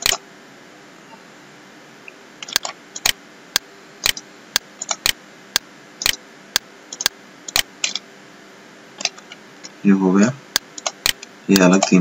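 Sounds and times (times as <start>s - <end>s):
computer mouse clicks: 0.0s - 0.2s, 2.4s - 3.2s, 4.0s - 4.2s, 4.8s - 5.2s, 6.9s - 8.0s, 10.5s - 12.0s.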